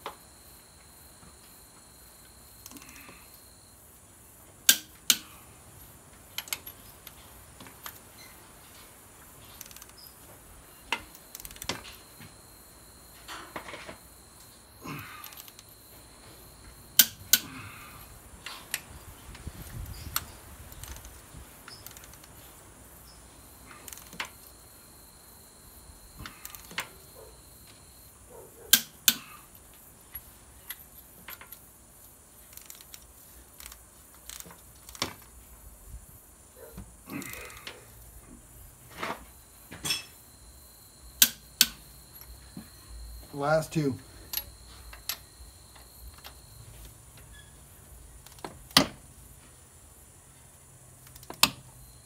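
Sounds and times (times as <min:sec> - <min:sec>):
torque wrench clicks: 0:09.6 - 0:10.0, 0:51.0 - 0:51.6.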